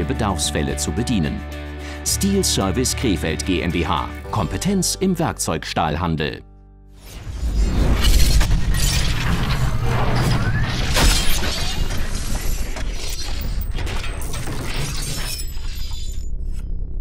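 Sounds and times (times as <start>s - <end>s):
shattering crashes: 7.0s - 16.6s
metal clattering and clanking: 8.0s - 16.2s.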